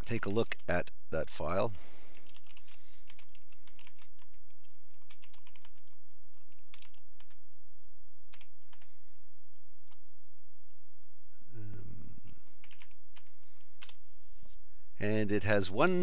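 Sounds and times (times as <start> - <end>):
steady low hum: 0.0 - 16.0
keyboard keys clicking: 2.2 - 7.4, 12.6 - 14.0.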